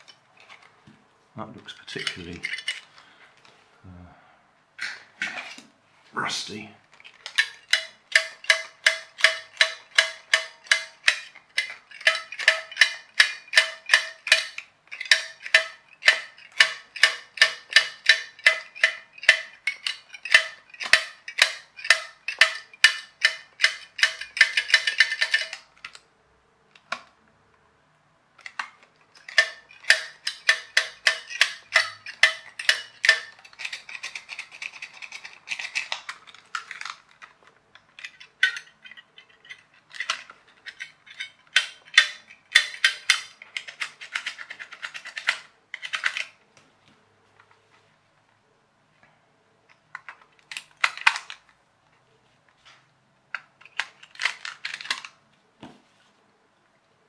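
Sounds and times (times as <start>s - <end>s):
metal tool scraping metal contacts: 1.7s - 2.9s, 29.2s - 36.9s, 38.0s - 46.2s.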